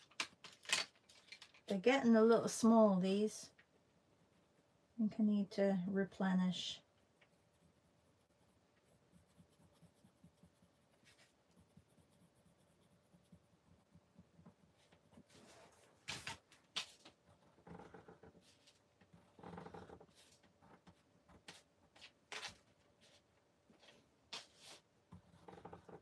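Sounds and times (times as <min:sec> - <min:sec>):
pencil scratching on paper: 0:06.6 - 0:15.8.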